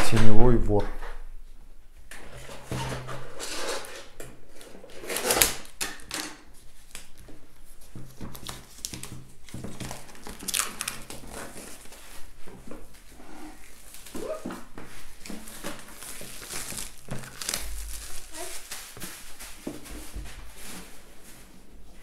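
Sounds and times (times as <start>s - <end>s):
packaging rustling and crinkling: 4.6s - 21.6s.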